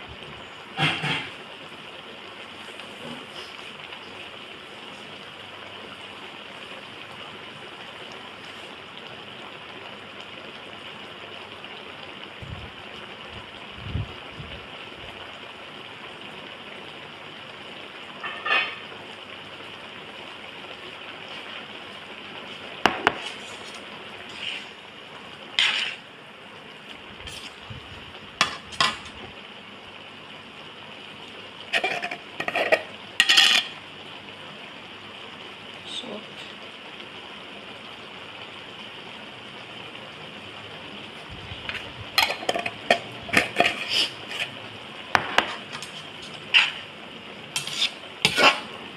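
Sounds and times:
meat and noodles sizzling in a wok: 0:00.0 - 0:48.9
tongs clinking against metal pan: 0:31.8 - 0:33.7, 0:42.2 - 0:43.8.

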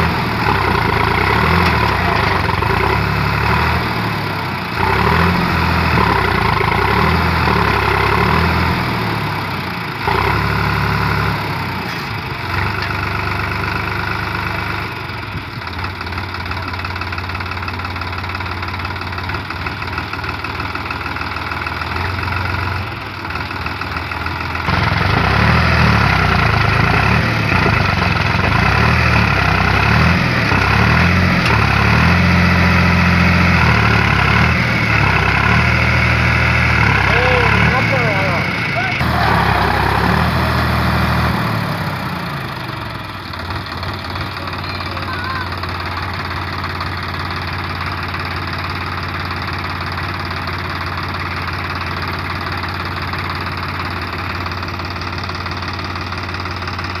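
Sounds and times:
tractor diesel engine revving: 0:00.0 - 0:57.0.

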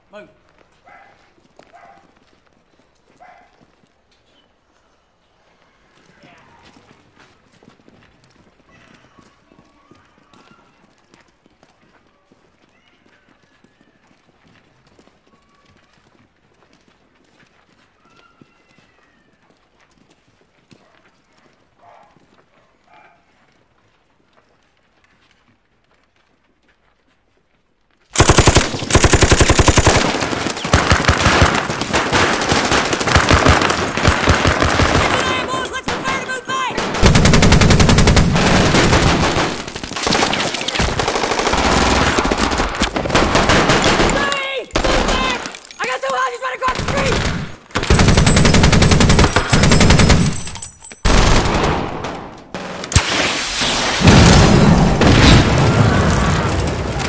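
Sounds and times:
automatic gunfire: 0:28.2 - 0:45.4, 0:46.7 - 0:53.1
loud explosion with rumble: 0:54.0 - 0:57.0.

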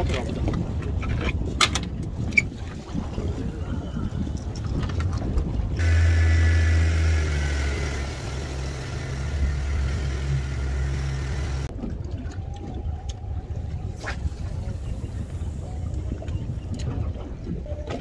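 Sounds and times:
wind noise: 0:00.0 - 0:05.9, 0:11.4 - 0:18.0
water rushing: 0:05.8 - 0:11.8
outboard motor droning: 0:05.8 - 0:18.0.

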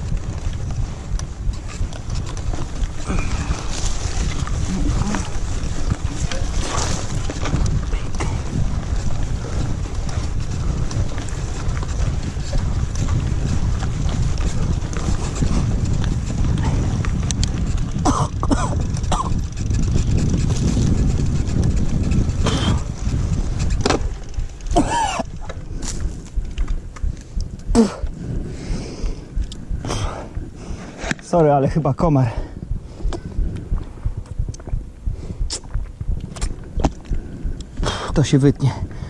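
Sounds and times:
mountain bike rolling on trail: 0:00.0 - 0:39.0
wind on microphone: 0:00.0 - 0:39.0
man coughing: 0:18.0 - 0:19.3, 0:24.8 - 0:25.3.

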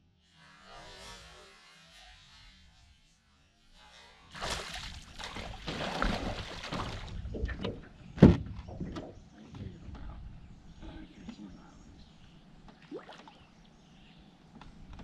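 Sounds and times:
fish splashing at water surface: 0:04.3 - 0:07.2.

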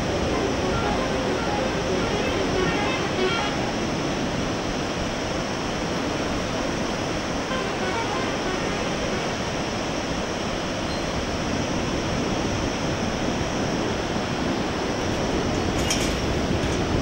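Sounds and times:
whitewater river rushing: 0:00.0 - 0:15.7.

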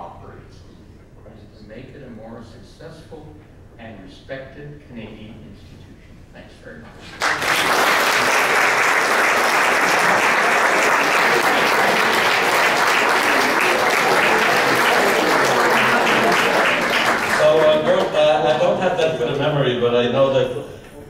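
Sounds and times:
audience applauding: 0:07.1 - 0:18.8.

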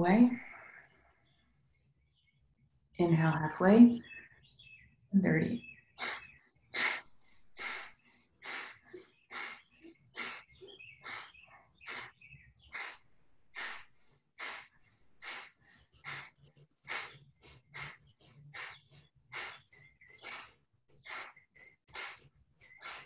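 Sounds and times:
person breathing forcefully through nose: 0:06.0 - 0:23.0.

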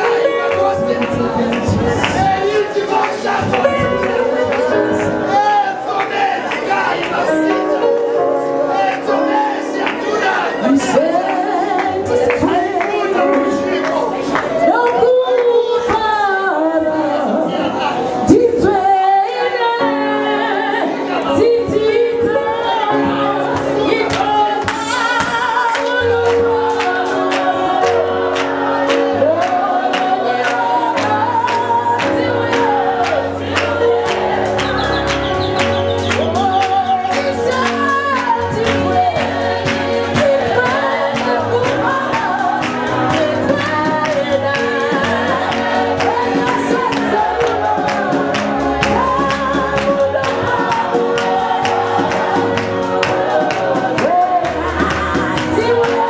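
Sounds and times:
woman singing into a microphone: 0:00.0 - 0:05.8, 0:07.4 - 0:56.0
choir singing: 0:00.0 - 0:14.8, 0:16.5 - 0:56.0
drums keeping a steady beat: 0:32.6 - 0:56.0.

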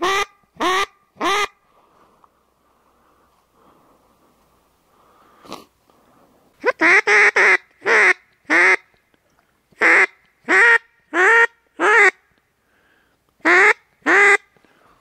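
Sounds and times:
duck quacking: 0:13.4 - 0:14.4.

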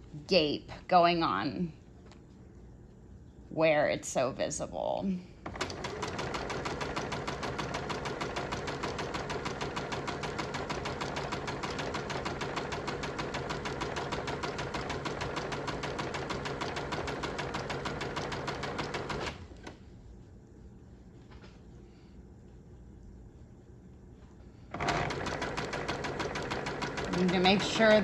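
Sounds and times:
sewing machine stitching: 0:05.5 - 0:19.4, 0:24.7 - 0:28.0.

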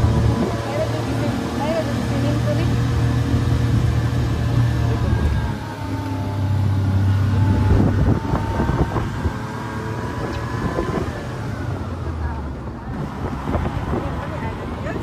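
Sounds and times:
car engine and road drone: 0:00.0 - 0:15.0.

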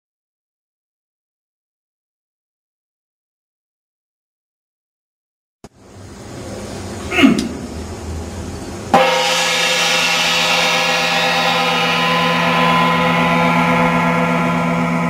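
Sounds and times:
gong-like metallic tone ringing: 0:08.9 - 0:15.0.

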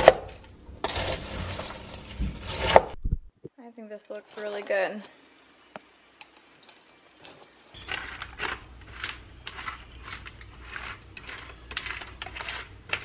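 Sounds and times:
spoon scraping crunchy snack mix: 0:07.2 - 0:13.0.

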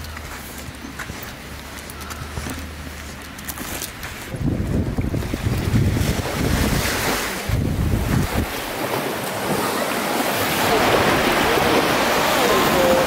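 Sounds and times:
waves washing onto sandy beach: 0:00.0 - 0:13.0
wind buffeting microphone: 0:04.1 - 0:13.0.

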